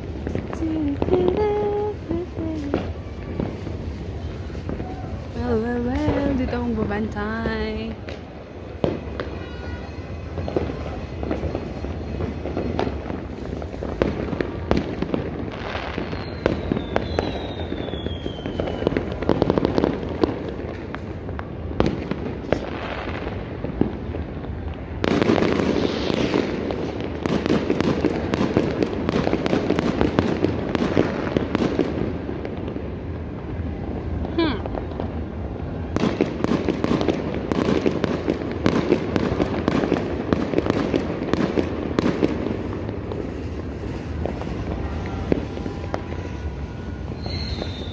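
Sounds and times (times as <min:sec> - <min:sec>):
fireworks bangs and crackles: 0:00.0 - 0:47.9
falling firework whistle: 0:00.3 - 0:06.2, 0:08.8 - 0:20.4, 0:43.9 - 0:47.9.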